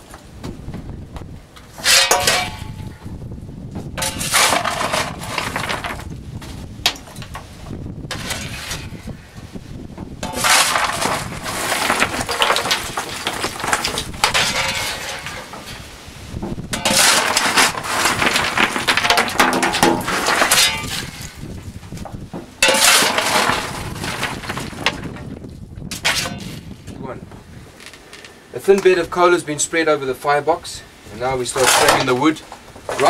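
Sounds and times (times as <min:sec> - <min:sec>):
coal clattering onto grate: 0:01.7 - 0:02.9, 0:04.0 - 0:06.2, 0:06.8 - 0:07.4, 0:08.1 - 0:09.0, 0:10.2 - 0:15.9, 0:16.6 - 0:26.6, 0:31.5 - 0:33.0
steel shovel scraping coal: 0:01.7 - 0:03.0, 0:04.0 - 0:06.2, 0:08.1 - 0:09.1, 0:10.2 - 0:16.0, 0:16.7 - 0:21.5, 0:22.5 - 0:26.8, 0:31.2 - 0:33.0.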